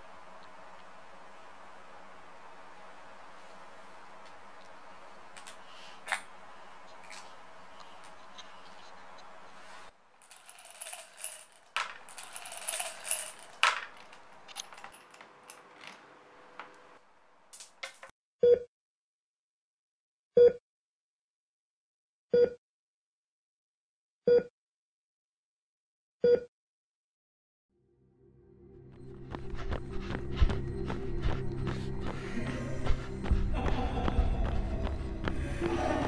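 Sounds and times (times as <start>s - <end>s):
steady hum: 0.0s - 17.6s, 28.6s - 36.0s
small hard objects rattling: 10.2s - 15.7s
heart monitor beeping: 22.4s - 22.6s.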